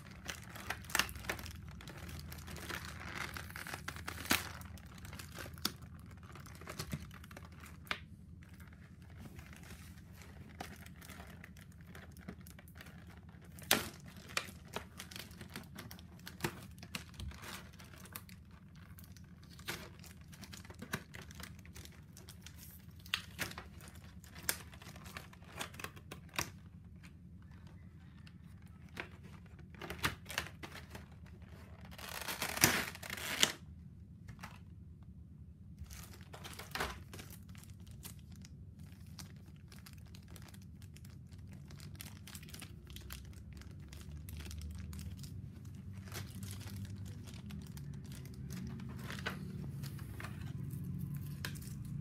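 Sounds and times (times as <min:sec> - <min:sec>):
plastic tearing: 0:00.0 - 0:33.7, 0:35.8 - 0:52.0
plastic packaging crinkling: 0:00.0 - 0:34.7, 0:35.7 - 0:52.0.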